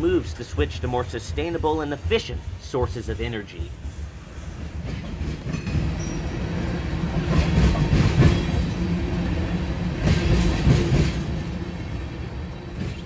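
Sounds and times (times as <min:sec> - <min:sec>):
freight train rumbling: 0:00.0 - 0:13.0.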